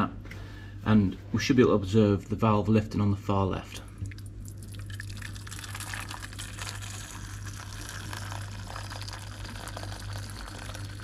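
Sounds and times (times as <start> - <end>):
water pouring into metal bowl: 4.5 - 11.0.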